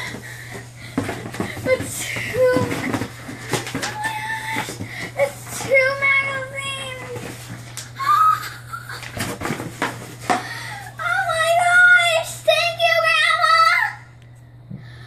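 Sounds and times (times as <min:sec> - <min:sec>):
cardboard and packaging rustling: 0:00.0 - 0:11.6
girl squealing excitedly: 0:08.0 - 0:09.0.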